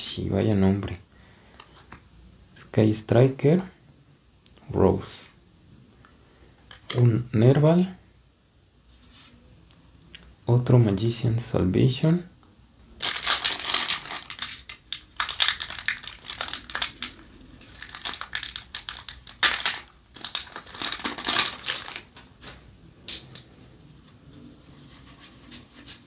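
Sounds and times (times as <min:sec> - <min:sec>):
foil wrapper crinkling: 0:13.0 - 0:22.3.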